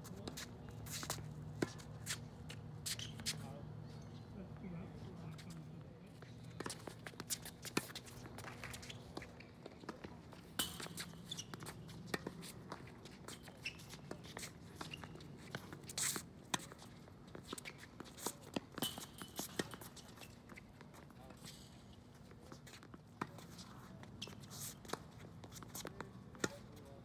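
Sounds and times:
sneakers scuffing on court: 0.0s - 4.2s.

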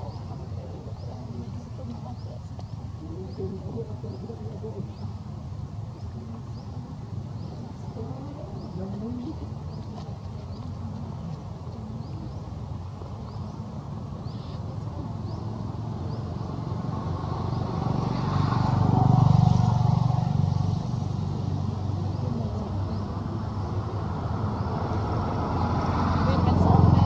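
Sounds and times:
low traffic rumble: 0.0s - 27.0s
vehicle engine passing: 13.0s - 27.0s.

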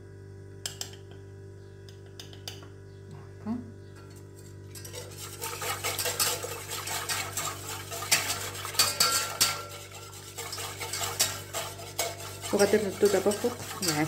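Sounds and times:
metal spoon stirring in saucepan: 4.1s - 14.0s.

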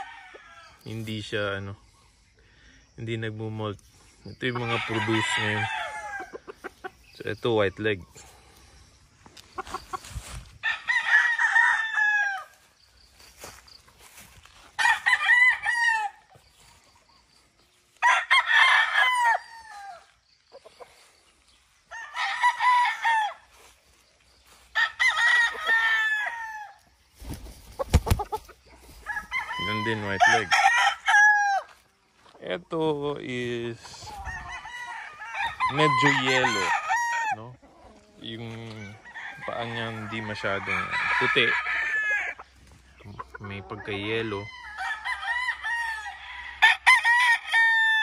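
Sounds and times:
roosters crowing: 0.0s - 1.3s, 4.4s - 7.0s, 9.6s - 12.8s, 14.5s - 16.7s, 17.8s - 21.1s, 21.7s - 32.0s, 33.7s - 48.0s.

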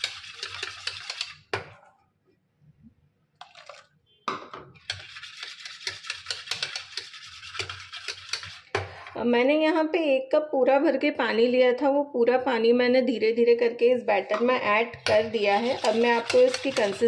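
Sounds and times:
whisk clicking and scraping in bowl: 0.0s - 1.8s, 3.4s - 3.9s, 4.8s - 8.9s, 14.4s - 17.0s.

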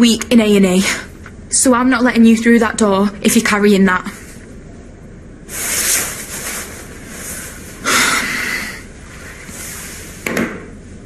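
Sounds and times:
padded jacket rustling: 5.5s - 7.8s
heavy breath out: 7.2s - 8.9s.

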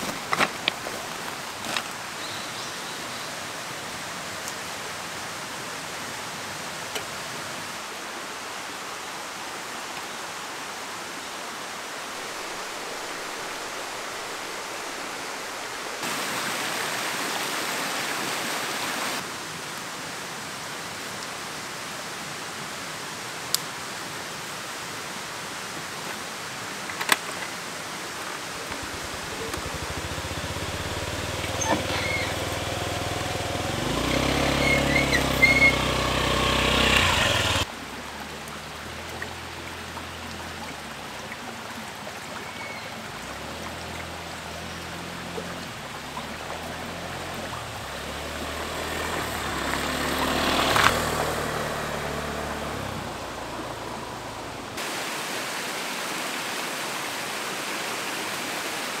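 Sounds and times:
scooter engine running: 28.7s - 37.7s, 43.4s - 54.4s
scooter riding past on dirt trail: 28.7s - 37.7s, 44.6s - 54.3s.

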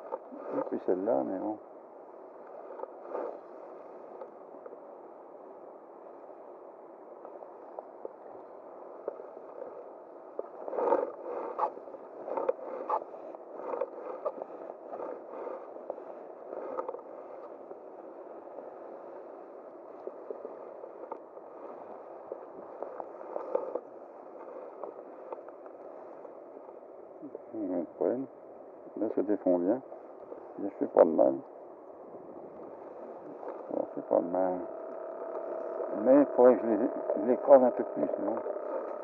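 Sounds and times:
clicks and scrapes near microphone: 0.0s - 1.2s, 2.4s - 4.8s, 9.0s - 27.4s, 32.2s - 36.8s, 37.4s - 39.0s.

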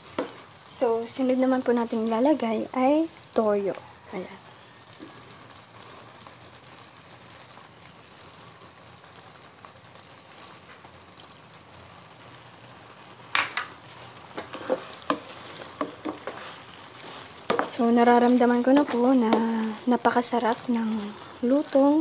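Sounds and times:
wooden spatula scraping a pan: 0.0s - 0.5s, 13.7s - 21.8s
food sizzling in a pan: 0.0s - 22.0s.

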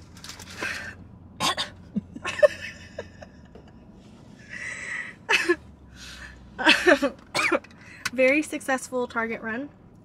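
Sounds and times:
woman giggling: 1.9s - 3.8s, 6.6s - 7.2s.

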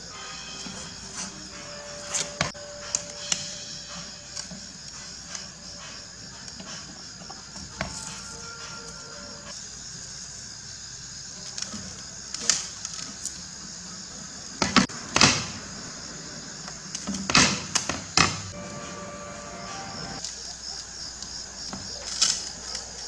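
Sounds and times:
utility knife scraping on glass: 0.4s - 2.5s.

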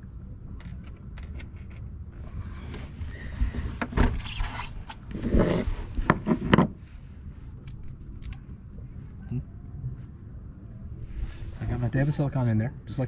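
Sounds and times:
dull rumble: 0.0s - 12.1s
rustling and scraping: 0.6s - 8.1s.

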